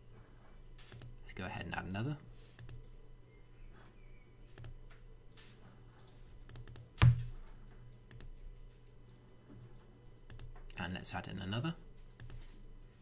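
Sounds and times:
computer mouse clicks: 0:00.5 - 0:01.2, 0:02.5 - 0:03.1, 0:04.5 - 0:10.8, 0:12.1 - 0:12.7.

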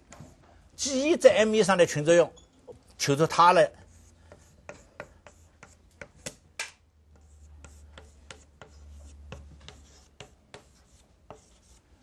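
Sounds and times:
chalk writing on blackboard: 0:03.7 - 0:06.4, 0:07.1 - 0:12.0.

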